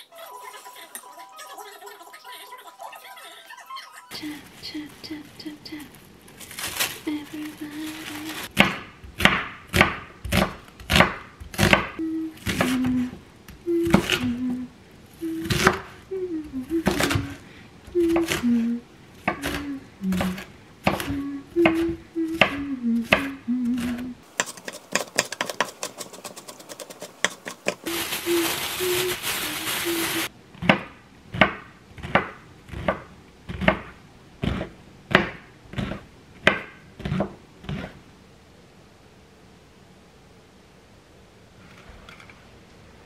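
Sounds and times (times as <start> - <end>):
woman humming: 4.0 - 6.0, 7.0 - 8.5, 12.0 - 24.2, 27.8 - 30.3
plastic bag crinkling: 4.3 - 8.5, 25.9 - 30.3
knife chopping on wooden board: 8.6 - 12.7, 30.6 - 37.9.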